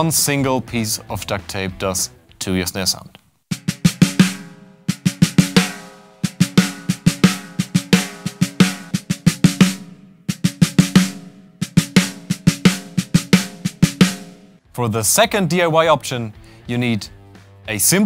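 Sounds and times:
damped snare drum hits: 3.5 - 14.6
snare drum struck with sticks: 3.5 - 14.6.

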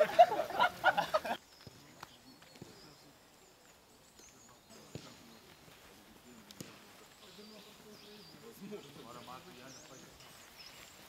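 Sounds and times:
men's voices and chuckling: 0.0 - 1.5
small birds chirping: 0.0 - 11.0.

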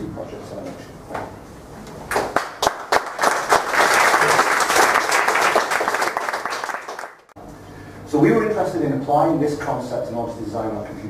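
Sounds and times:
audience applauding: 2.1 - 7.4.

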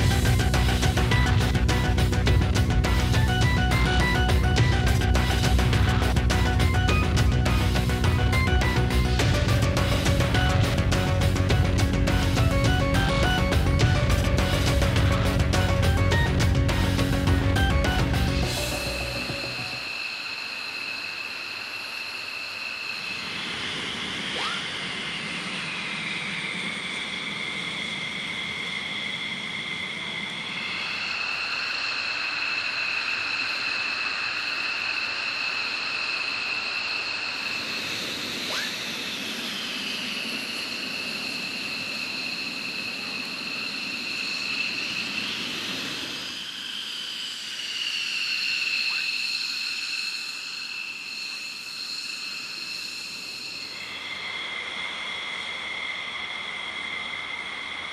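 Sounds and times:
jet engines whining: 0.0 - 57.9.

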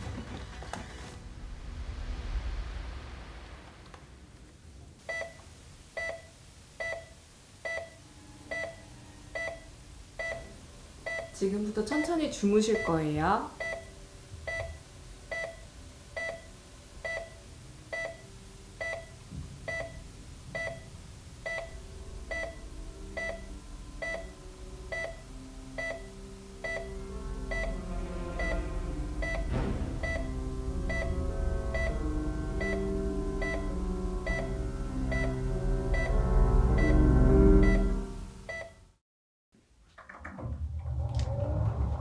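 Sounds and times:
patient monitor beeping: 6.0 - 15.6, 16.2 - 20.0, 20.6 - 27.8, 28.4 - 28.6, 29.2 - 31.2, 31.8 - 32.0, 32.6 - 36.2, 37.6 - 38.8
held low music notes: 8.1 - 38.5.

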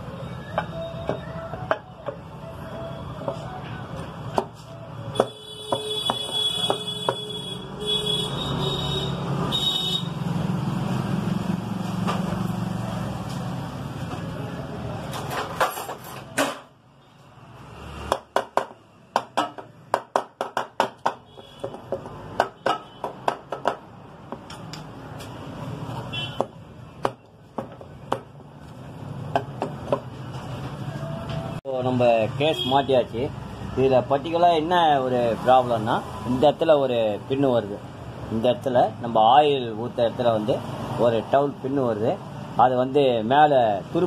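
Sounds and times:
sharp knocks on metal cover: 18.1 - 24.5.

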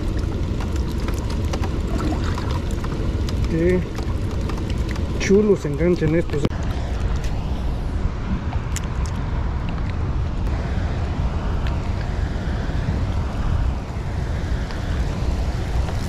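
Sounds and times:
rain falling on a river: 0.0 - 6.5
wind rumbling on microphone: 0.0 - 16.0.

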